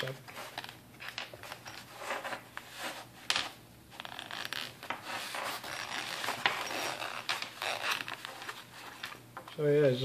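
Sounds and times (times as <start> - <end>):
packaging rubbing and scraping: 3.9 - 9.2.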